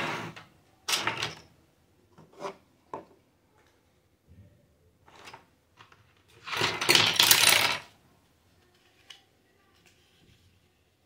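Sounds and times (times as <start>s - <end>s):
plastic toy pieces clattering: 5.1s - 7.9s.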